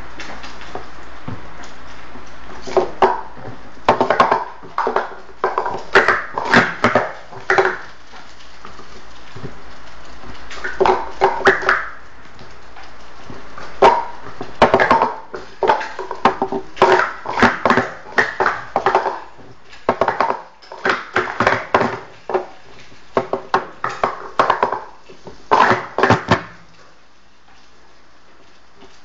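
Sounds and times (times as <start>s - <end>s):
plastic cups clacking: 2.6s - 9.4s, 10.3s - 26.6s.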